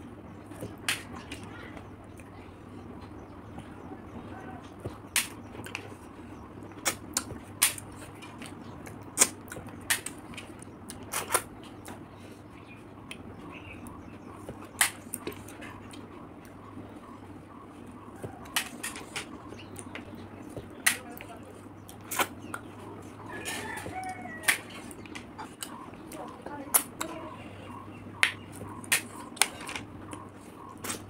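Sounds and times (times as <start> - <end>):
faint steady hum: 0.0 - 31.0
mouth smacking and sucking: 30.8 - 31.0.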